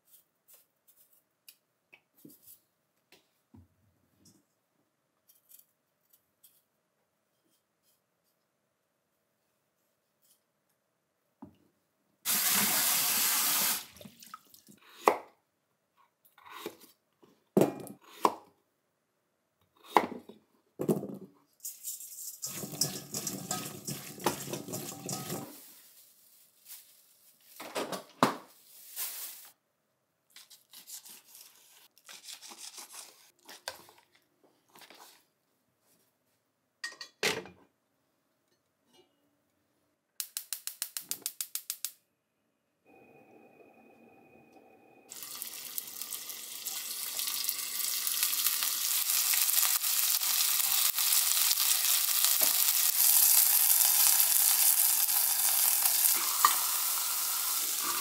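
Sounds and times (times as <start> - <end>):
kitchen tap running: 12.3 - 14.4, 22.4 - 25.5, 45.1 - 49.8
clinks on stainless steel bowl: 22.5 - 25.4.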